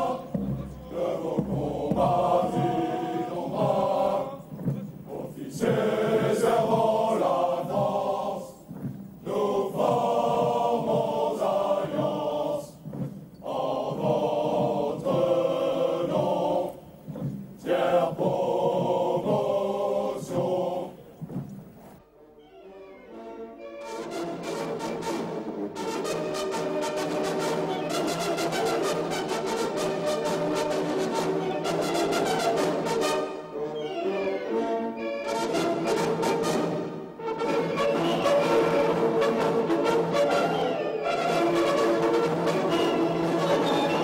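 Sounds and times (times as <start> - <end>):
men singing a marching song: 0.0 - 21.6.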